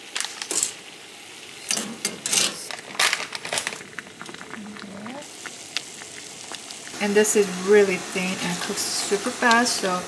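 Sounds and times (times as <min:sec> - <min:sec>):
dried noodles crackling: 0:02.6 - 0:07.0.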